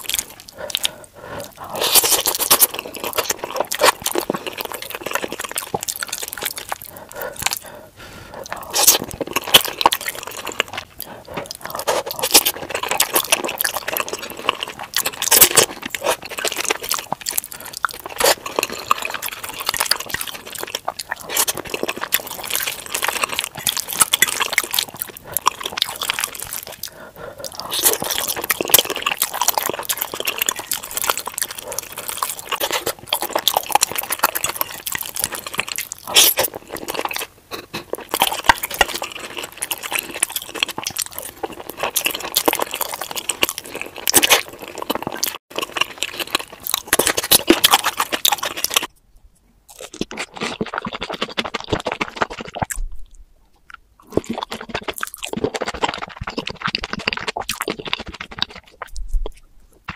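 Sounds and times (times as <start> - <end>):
wet squishy chewing: 0.0 - 49.0, 49.7 - 59.9.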